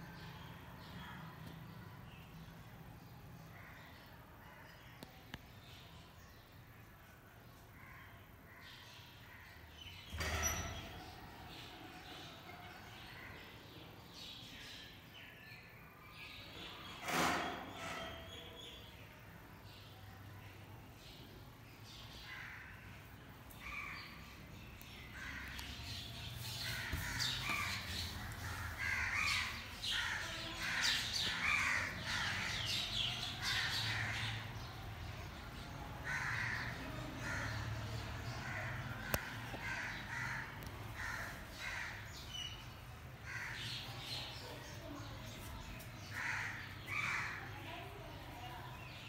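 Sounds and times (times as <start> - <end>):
crows cawing: 26.7 - 34.4, 36.0 - 37.8, 38.4 - 42.2, 43.2 - 43.9, 46.1 - 47.4.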